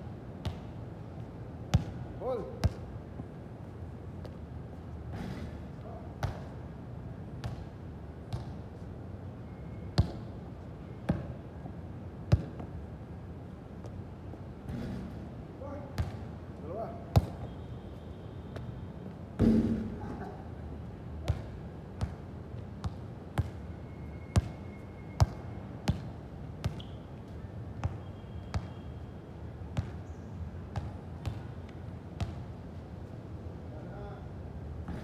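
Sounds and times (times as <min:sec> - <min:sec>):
sharp knocks and thumps: 0:19.4 - 0:20.0.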